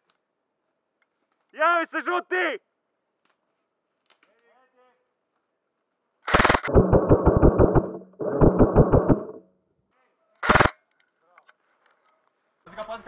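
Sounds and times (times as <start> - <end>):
airsoft rifle full-auto bursts: 6.3 - 9.4, 10.4 - 10.7.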